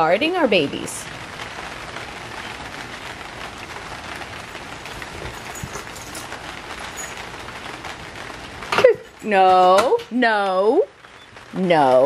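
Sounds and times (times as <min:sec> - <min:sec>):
rain pattering: 0:00.0 - 0:12.0.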